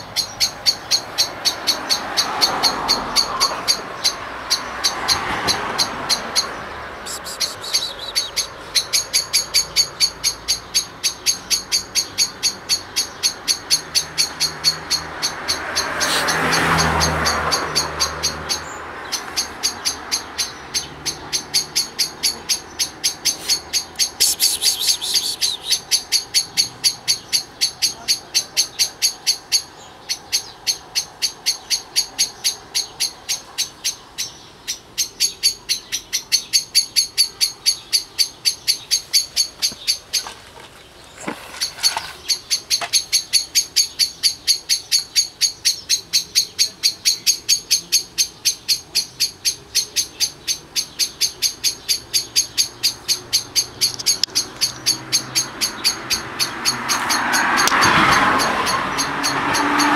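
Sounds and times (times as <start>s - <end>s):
high chirp repeating: 6.1s - 13.8s, 21.6s - 29.4s.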